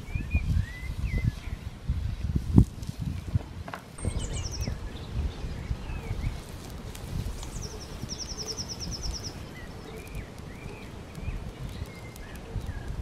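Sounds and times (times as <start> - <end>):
faint bird chirps: 4.0 - 6.4, 7.4 - 13.0
songbird trilling: 4.0 - 6.4, 7.4 - 12.9.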